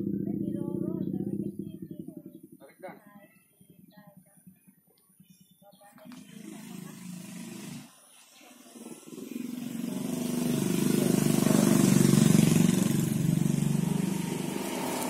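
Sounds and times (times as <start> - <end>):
vehicle engine passing: 0.0 - 2.9, 8.5 - 15.0.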